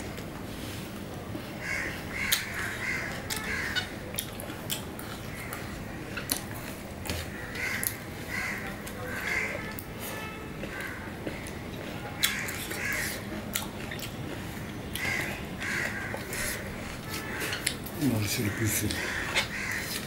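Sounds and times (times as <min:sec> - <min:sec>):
eating from a steel plate: 0:00.0 - 0:20.0
crows cawing: 0:01.6 - 0:04.0, 0:07.3 - 0:09.7, 0:10.7 - 0:11.5, 0:12.2 - 0:13.2, 0:15.0 - 0:20.0.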